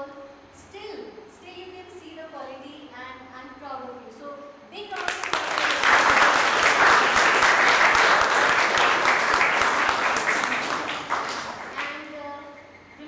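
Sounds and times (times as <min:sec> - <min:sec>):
audience applauding: 0:05.0 - 0:12.1.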